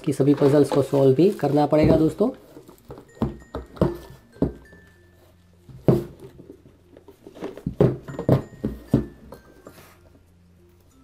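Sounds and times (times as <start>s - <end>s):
knocks and taps on cardboard box: 2.9s - 4.8s, 7.6s - 9.4s.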